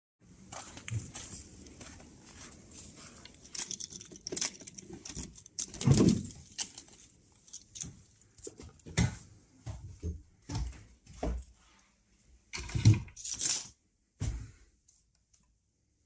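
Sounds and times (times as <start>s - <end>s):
keys jangling on a keyring: 3.2s - 8.9s, 13.2s - 13.7s
key working a metal door lock: 3.4s - 7.0s.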